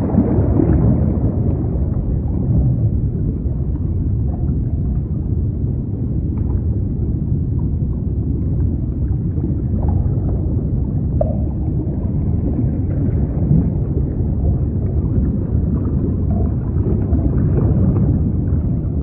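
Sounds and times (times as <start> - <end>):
dull wash of sea: 0.0 - 19.0.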